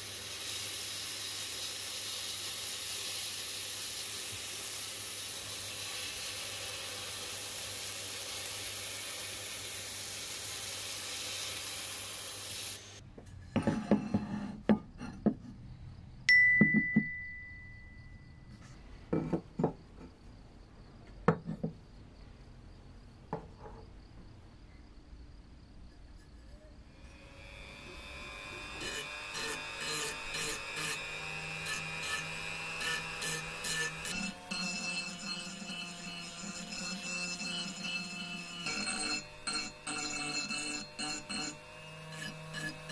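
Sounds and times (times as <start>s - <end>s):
sandblasting gun hissing: 0.0s - 13.0s.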